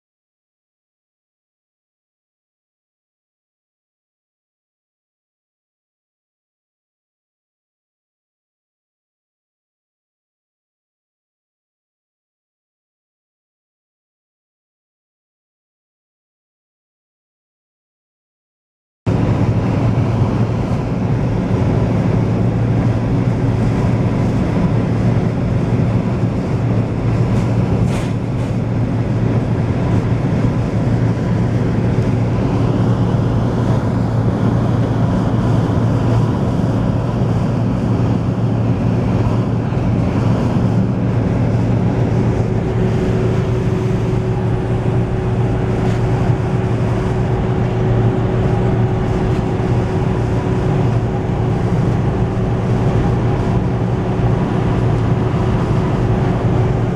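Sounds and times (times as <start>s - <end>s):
engine and tyre drone: 19.1s - 56.9s.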